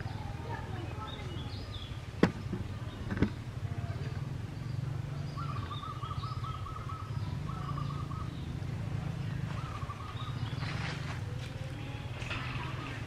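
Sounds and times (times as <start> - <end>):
bird trilling: 5.3 - 8.5.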